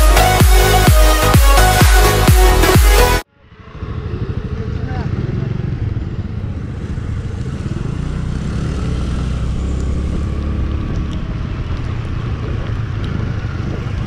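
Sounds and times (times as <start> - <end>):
motorcycle engine running: 3.4 - 14.0
wind on microphone: 3.4 - 14.0.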